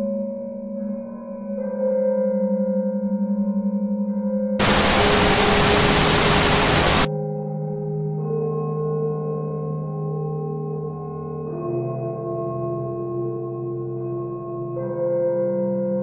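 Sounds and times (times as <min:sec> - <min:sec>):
eerie electronic drone: 0:04.6 - 0:07.1
white-noise static burst: 0:04.6 - 0:07.1.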